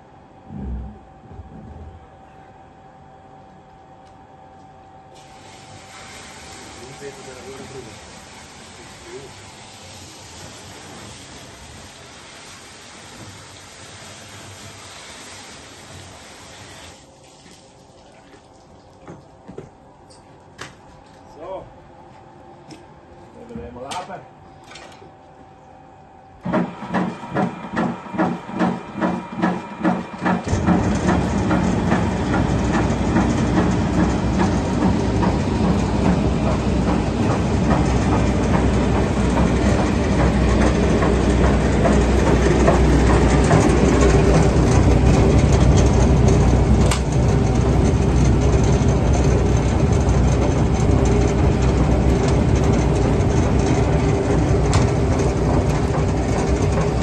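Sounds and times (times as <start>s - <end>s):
machine running with low rumble: 0.0s - 5.6s, 20.8s - 57.0s.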